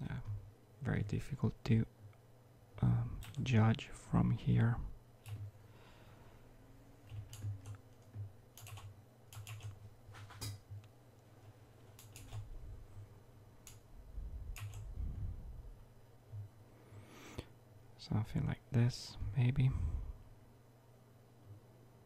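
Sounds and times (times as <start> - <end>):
steady low hum: 0.0 - 22.0
keyboard and mouse clicking: 5.2 - 5.5, 7.1 - 10.9, 11.9 - 12.5, 13.6 - 13.8, 14.5 - 14.9.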